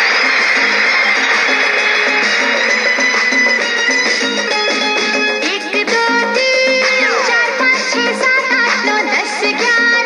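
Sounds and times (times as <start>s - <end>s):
film song from small cassette speaker: 0.0s - 10.0s.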